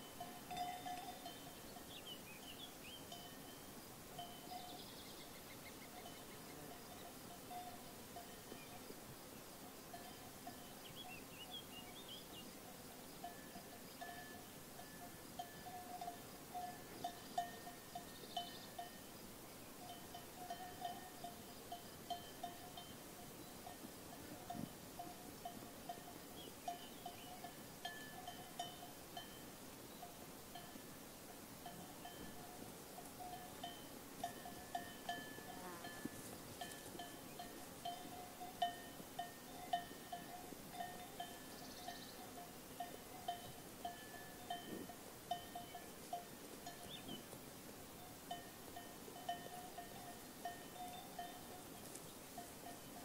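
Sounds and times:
sheep bells clinking: 0:00.0 - 0:08.9, 0:09.6 - 0:53.0
faint outdoor background noise: 0:00.0 - 0:53.0.

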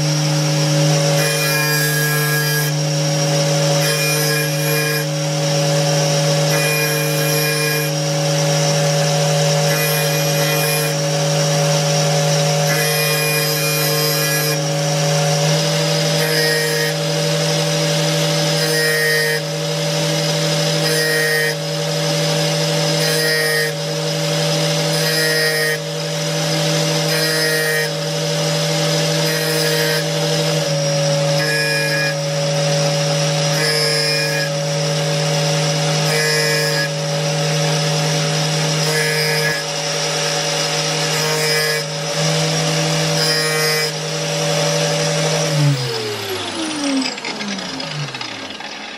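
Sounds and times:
angle grinder running: 0:00.0 - 0:48.9
grinding rasp on saw teeth: 0:00.0 - 0:48.9.

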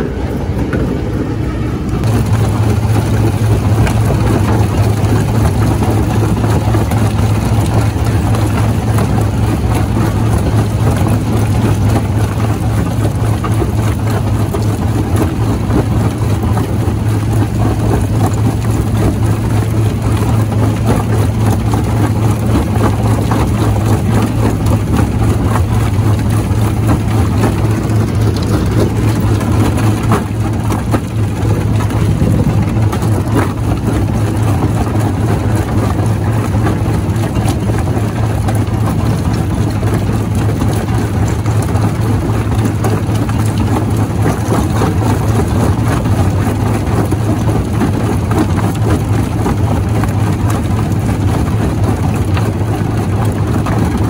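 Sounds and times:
rock crusher humming: 0:00.0 - 0:54.0.

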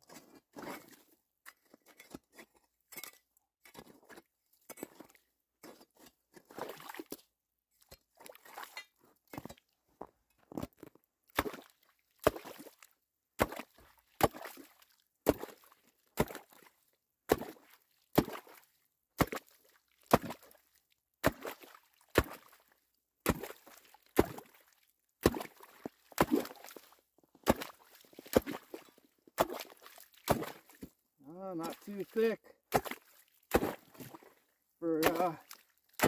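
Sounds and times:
slushy water splash: 0:23.3 - 0:24.6, 0:25.2 - 0:36.0
ice chipper chopping ice: 0:34.9 - 0:35.4.

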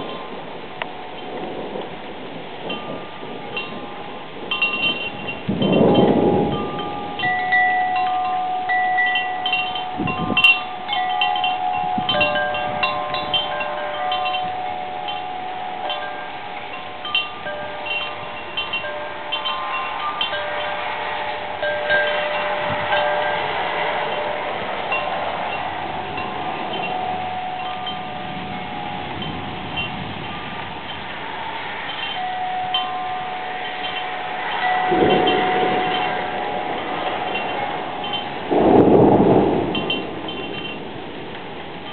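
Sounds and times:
wind chimes ringing: 0:00.0 - 0:01.9, 0:02.6 - 0:41.9
wind hiss: 0:00.0 - 0:41.9
low rumble: 0:32.8 - 0:41.5.

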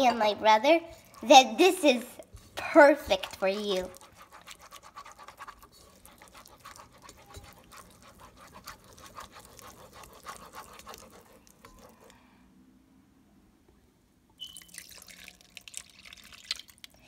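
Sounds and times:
whisk scraping in a pot: 0:00.8 - 0:12.2.

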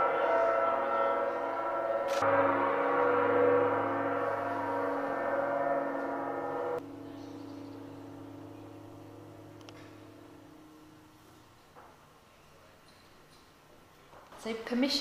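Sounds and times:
metal singing bowl ringing: 0:00.0 - 0:11.6.

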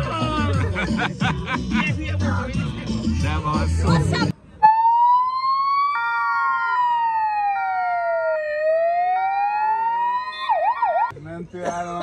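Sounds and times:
ambulance siren wailing: 0:04.6 - 0:11.1
two-tone hi-lo siren: 0:04.6 - 0:11.1.

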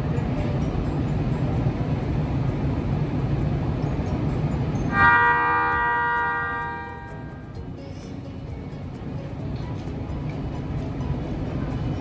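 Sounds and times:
train rumbling: 0:00.0 - 0:12.0
train horn blast: 0:04.9 - 0:07.5.

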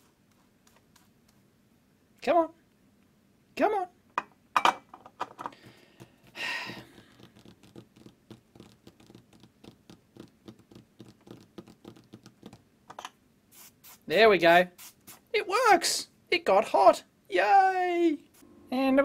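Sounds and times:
breathy noise: 0:05.5 - 0:07.4.

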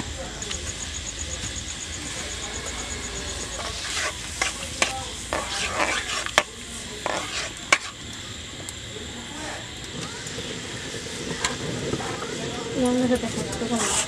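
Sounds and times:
water boiling in a wok: 0:00.0 - 0:14.0
spatula scraping a wok: 0:03.0 - 0:08.1, 0:13.2 - 0:14.0.

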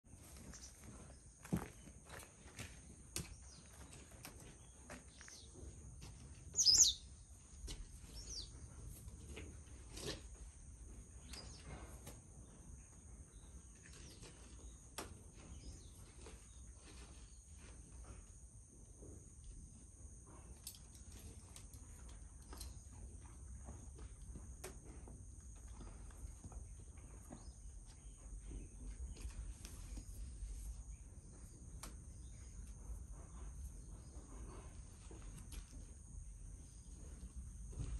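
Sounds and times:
steady high-pitched hum: 0:00.2 - 0:37.9
faint bird calls: 0:06.6 - 0:07.1
loud bird chirp: 0:06.6 - 0:07.1.

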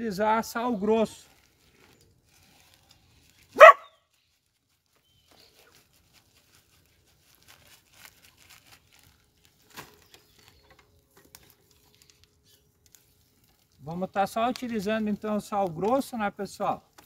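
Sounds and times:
faint clicks and rustles: 0:01.1 - 0:17.0.

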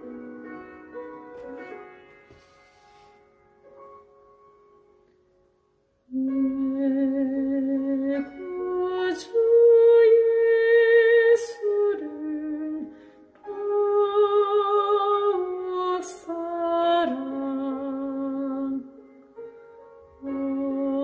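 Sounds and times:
recorded accompaniment music: 0:00.0 - 0:10.5
woman singing with vibrato: 0:06.1 - 0:18.9, 0:20.2 - 0:21.0.

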